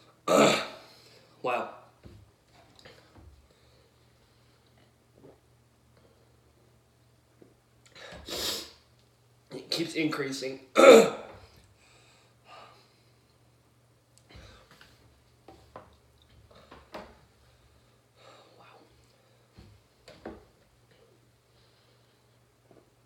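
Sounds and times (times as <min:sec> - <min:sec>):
man breathing: 0:11.6 - 0:13.3, 0:14.3 - 0:14.9, 0:17.4 - 0:19.7, 0:21.5 - 0:22.4.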